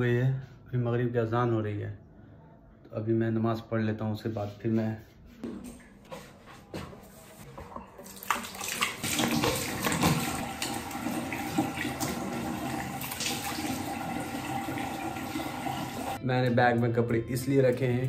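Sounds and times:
bathroom tap running: 8.0s - 16.2s
water splashing: 8.0s - 16.2s.

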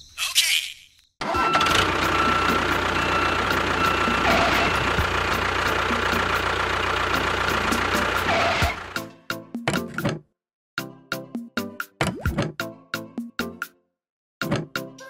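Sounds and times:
tractor engine idling: 1.2s - 9.1s.

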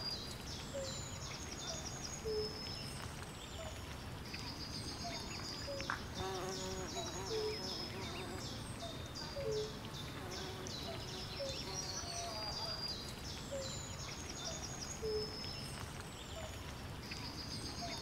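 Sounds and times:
birds and insects chirping: 4.3s - 16.5s.

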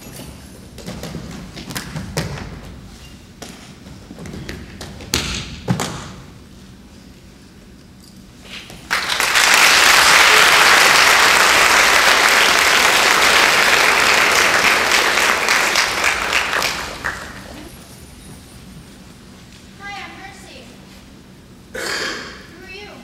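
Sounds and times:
audience applauding: 8.9s - 17.8s.

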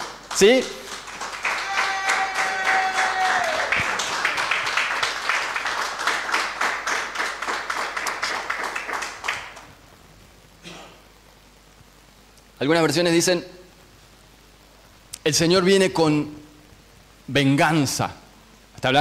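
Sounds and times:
congregation clapping: 0.0s - 9.8s.

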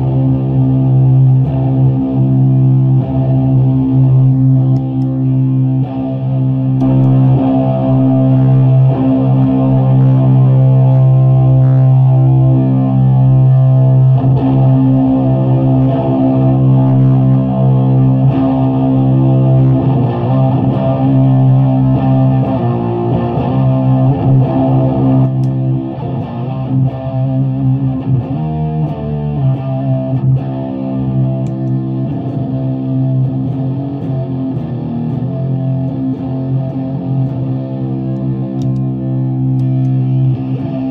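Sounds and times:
fuzzed electric guitar drone: 0.0s - 40.9s.

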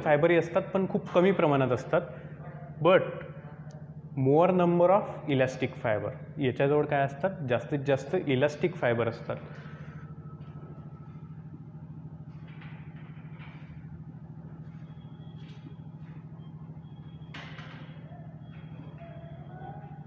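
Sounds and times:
low hum: 0.0s - 20.0s.

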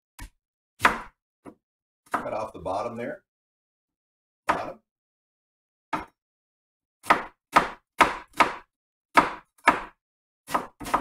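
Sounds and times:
knife chopping on wooden board: 0.2s - 2.4s, 4.5s - 4.8s, 5.9s - 6.2s, 7.0s - 11.0s.

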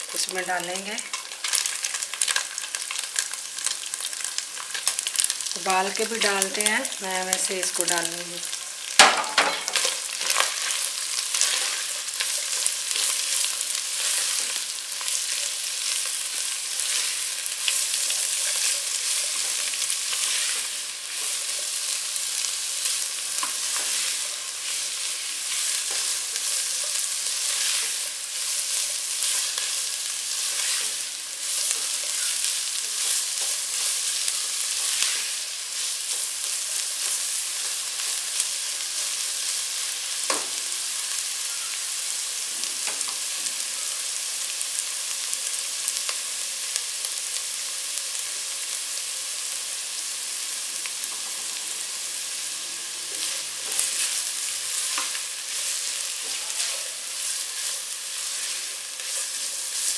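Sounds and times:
food sizzling in hot oil: 0.0s - 59.9s.

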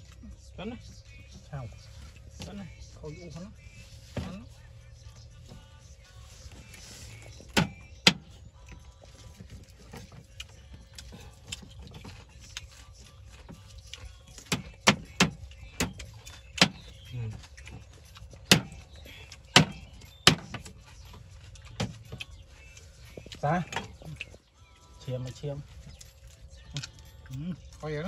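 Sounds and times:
cleaver chopping on wooden board: 18.5s - 18.8s, 19.6s - 20.6s.

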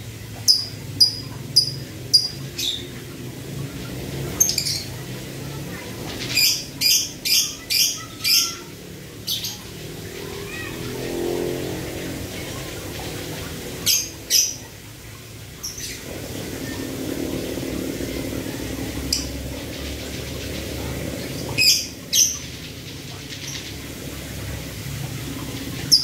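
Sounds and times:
lovebird clicking calls: 0.4s - 2.8s.

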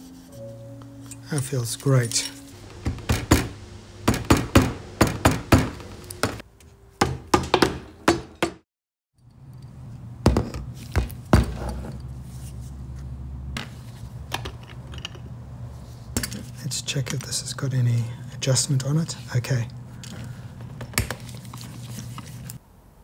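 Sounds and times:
low steady hum: 0.0s - 6.4s
hard parts knocking and clicking: 2.7s - 6.4s.

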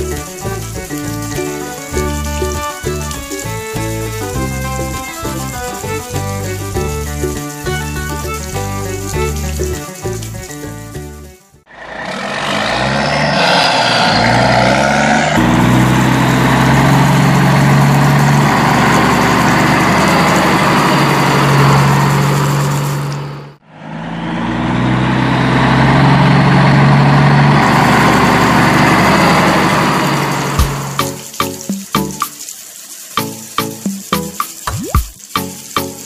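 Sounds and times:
car engine revving: 11.7s - 31.0s.

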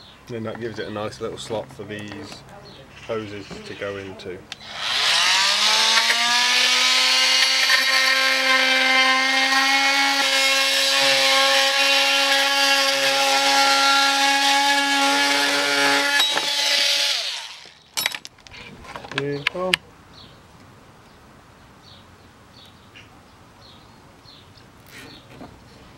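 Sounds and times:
multi-tool whine cutting plastic: 4.5s - 18.0s.

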